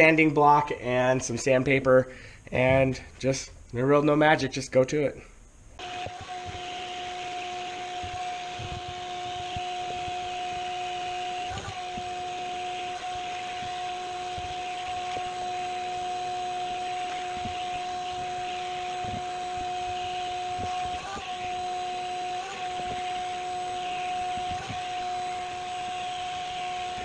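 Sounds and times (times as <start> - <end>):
vacuum cleaner whine: 5.8 - 27.0.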